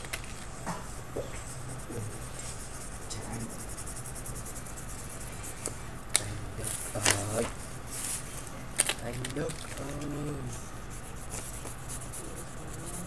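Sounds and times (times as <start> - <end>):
pen scratching on paper: 1.4 - 7.8, 10.8 - 13.0.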